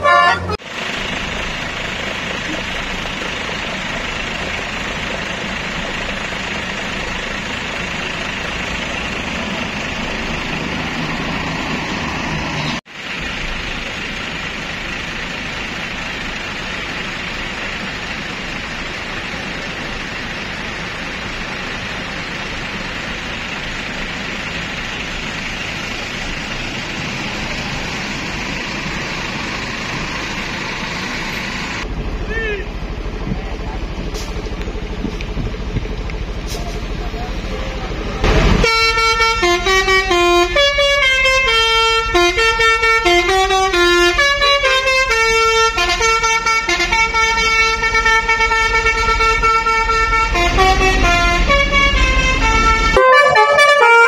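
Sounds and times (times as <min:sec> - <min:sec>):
bus horn tune: 0:00.0 - 0:00.6, 0:38.6 - 0:54.0.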